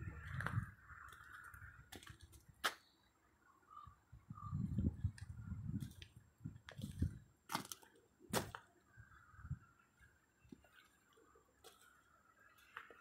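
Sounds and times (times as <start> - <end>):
footsteps on gravel: 6.7 - 8.7, 11.6 - 13.0.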